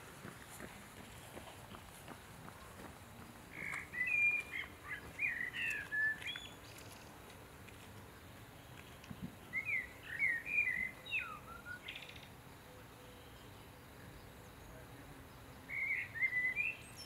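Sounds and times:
songbird whistling: 3.6s - 6.6s, 9.5s - 12.2s, 15.7s - 17.0s.

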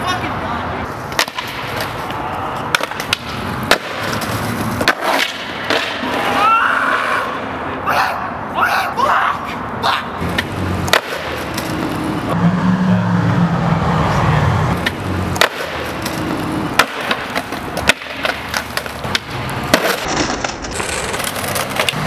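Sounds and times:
skateboard wheels rolling on asphalt: 0.0s - 7.8s, 9.4s - 12.4s, 14.0s - 22.0s
skateboard grinding on concrete: 0.9s - 7.4s, 14.7s - 22.0s
skateboard clacks: 1.1s - 6.3s, 10.2s - 12.0s, 14.8s - 22.0s.

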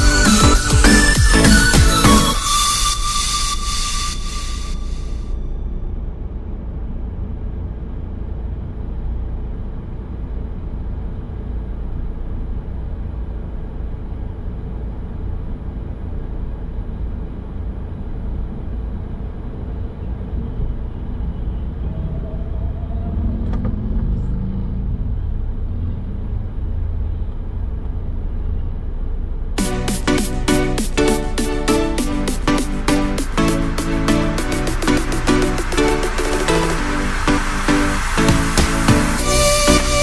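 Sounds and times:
car driving rumble: 5.5s - 29.6s.

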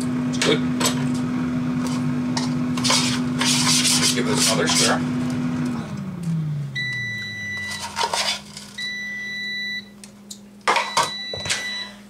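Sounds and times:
scrape: 2.8s - 5.0s, 7.7s - 8.6s
high beep: 6.8s - 7.9s, 8.8s - 9.9s, 10.8s - 12.0s.

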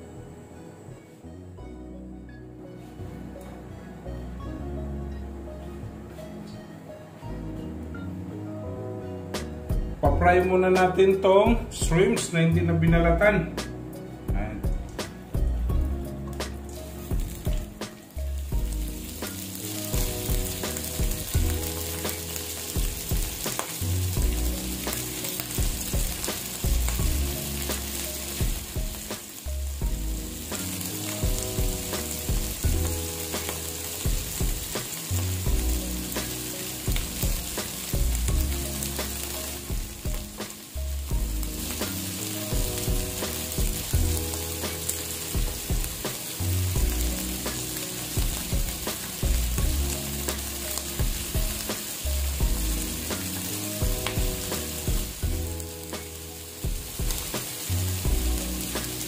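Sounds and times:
shrimp sizzling in hot oil: 13.6s - 59.0s.

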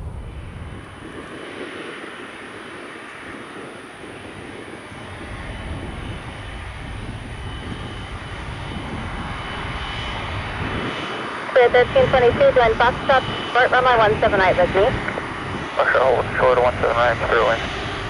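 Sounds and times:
airliner engine rush: 0.0s - 18.0s.

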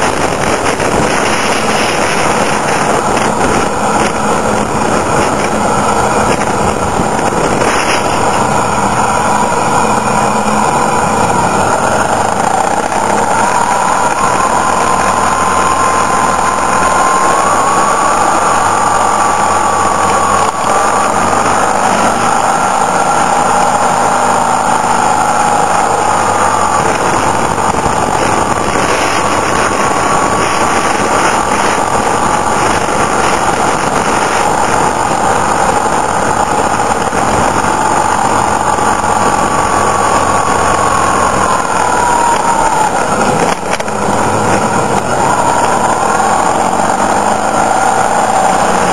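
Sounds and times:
motorcycle engine running: 0.0s - 48.9s
wind rush: 0.0s - 48.9s.

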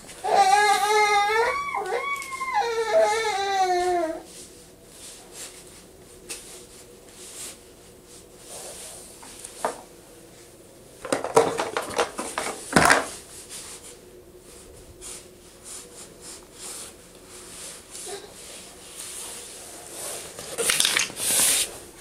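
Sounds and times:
plastic toy blocks clattering: 11.0s - 13.1s, 20.4s - 21.4s.

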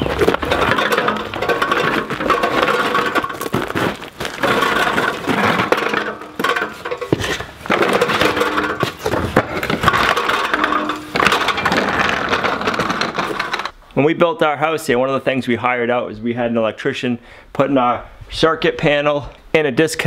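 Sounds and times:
casters crunching on gravel: 0.0s - 13.7s
metal frame clattering: 0.0s - 13.7s.

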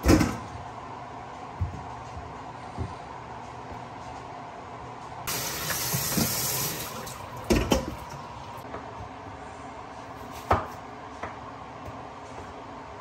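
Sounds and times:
faucet running into steel bowl: 5.3s - 8.0s.

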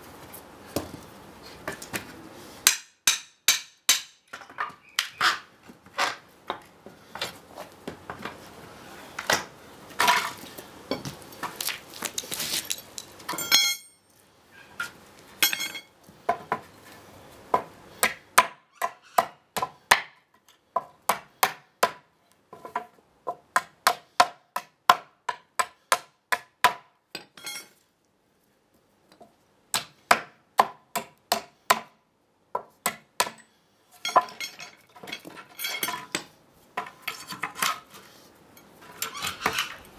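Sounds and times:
hammer striking wood: 2.6s - 4.2s, 17.6s - 20.1s, 20.8s - 22.1s, 23.3s - 26.9s, 29.7s - 31.9s
short metallic ring: 13.4s - 14.0s
wood creaking and scraping: 38.8s - 39.9s.

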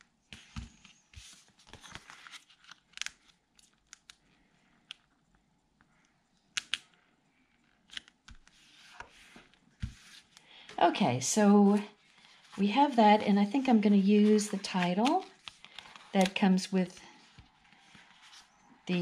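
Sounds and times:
paper rustling and sliding: 8.4s - 10.4s, 11.6s - 18.6s.

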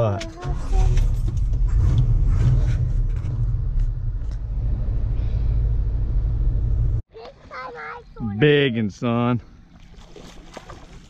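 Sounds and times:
pickup engine droning: 0.4s - 7.0s.

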